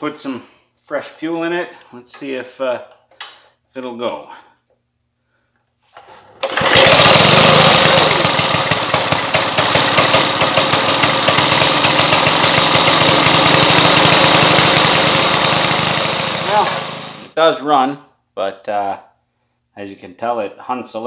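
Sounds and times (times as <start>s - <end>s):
lawn mower engine running: 6.2s - 17.4s.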